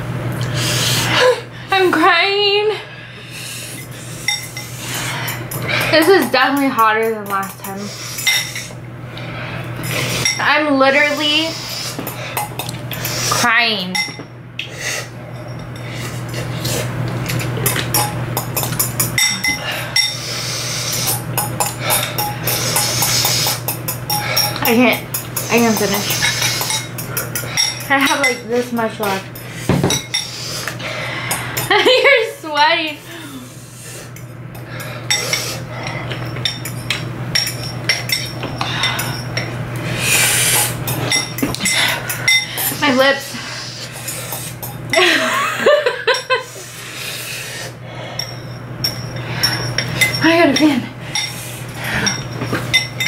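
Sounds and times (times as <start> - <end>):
steady low hum: 0.0 - 53.0
fork clinking on ceramic bowl: 17.3 - 20.2, 20.9 - 28.4, 35.1 - 39.5.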